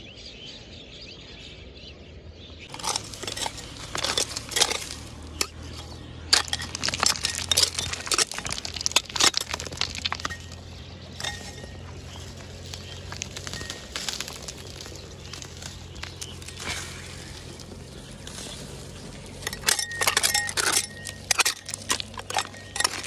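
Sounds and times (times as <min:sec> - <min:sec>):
metal trowel scraping dirt: 0:02.7 - 0:23.0
pebbles clattering down: 0:02.7 - 0:23.0.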